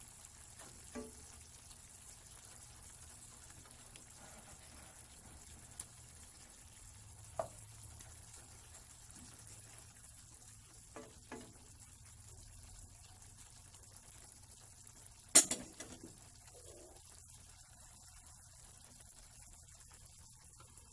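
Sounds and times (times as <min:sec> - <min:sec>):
spatula stirring in saucepan: 0:00.1 - 0:12.4
spatula knocking pan: 0:00.6 - 0:01.4, 0:10.9 - 0:11.6, 0:15.4 - 0:16.2
spatula clattering on plate: 0:15.4 - 0:16.1.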